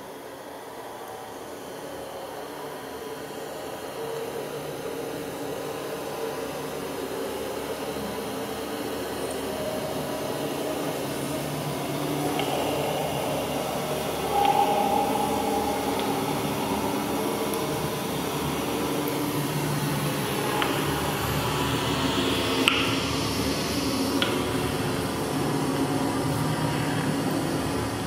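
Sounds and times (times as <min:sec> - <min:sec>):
electronic drone music: 0:09.0 - 0:26.6.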